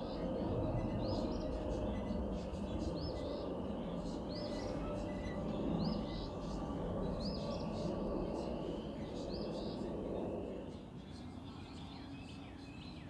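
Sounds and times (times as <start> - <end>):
steady low rumble: 0.0 - 10.9.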